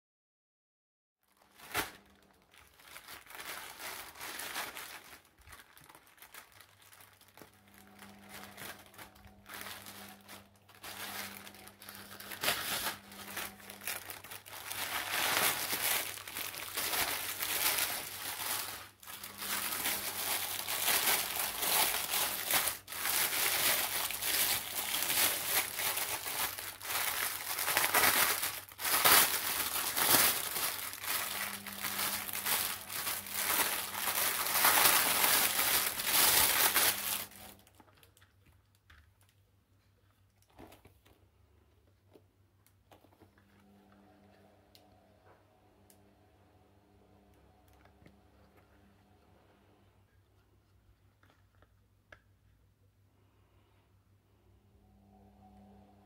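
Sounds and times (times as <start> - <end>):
plastic packaging crinkling: 1.2 - 39.4, 40.0 - 41.2.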